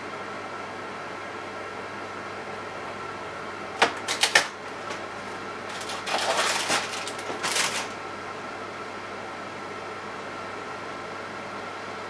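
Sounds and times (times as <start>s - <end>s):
microwave oven humming: 0.0s - 12.0s
food crackling: 4.0s - 8.0s.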